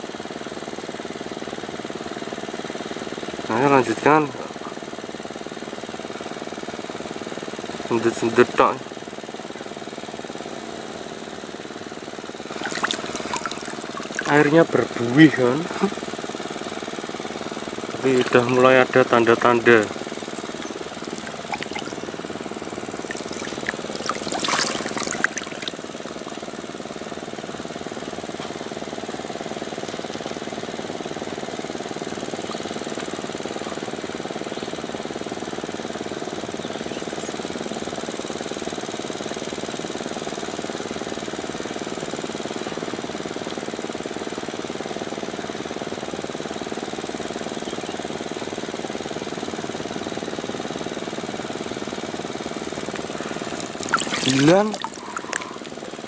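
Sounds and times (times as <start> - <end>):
engine drone: 19.2 - 27.7.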